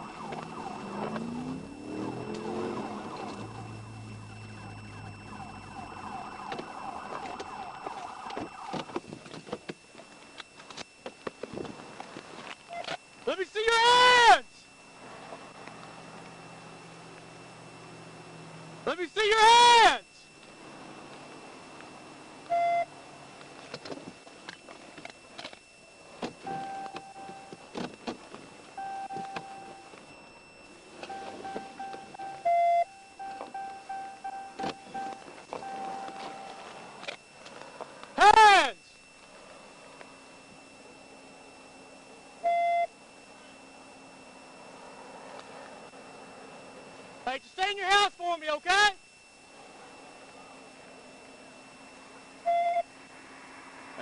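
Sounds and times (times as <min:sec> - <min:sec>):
police siren warbling: 0:00.0 - 0:09.1, 0:25.4 - 0:37.6
electronic beeping: 0:00.0 - 0:11.3, 0:22.4 - 0:23.0, 0:24.5 - 0:37.5, 0:39.9 - 0:44.8, 0:50.1 - 0:53.0.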